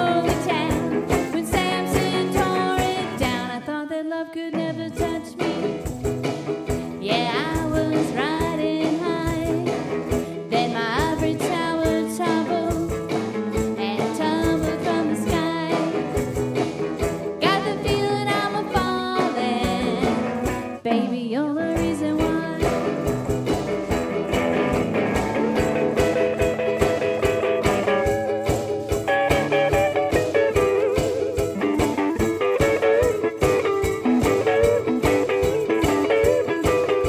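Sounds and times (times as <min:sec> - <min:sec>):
woman singing: 0:00.0 - 0:05.9, 0:06.8 - 0:16.2, 0:17.4 - 0:23.1
electric guitar: 0:00.0 - 0:37.0
ukulele: 0:00.0 - 0:37.0.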